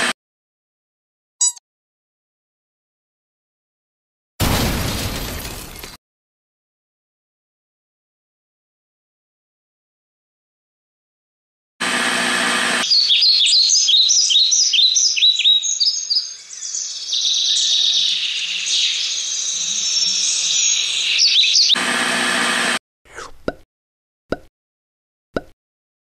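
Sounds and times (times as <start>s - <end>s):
birds chirping: 12.8s - 21.8s.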